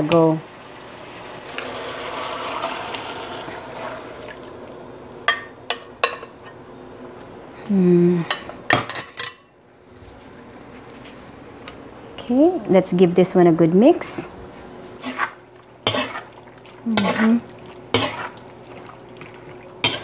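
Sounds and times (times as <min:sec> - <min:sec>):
liquid pouring and sizzling: 0:00.0 - 0:05.3, 0:15.0 - 0:20.0.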